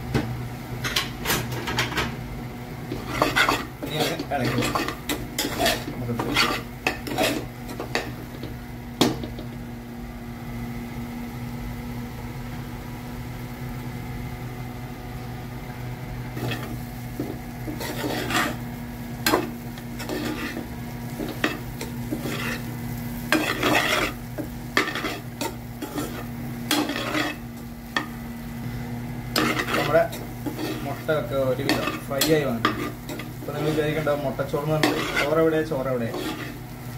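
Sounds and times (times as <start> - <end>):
steady hum: 0.0 - 36.9
spoon scraping a steel pan: 2.9 - 8.1, 16.4 - 16.8, 17.7 - 18.6, 19.3 - 22.7, 23.3 - 28.1, 29.3 - 36.6.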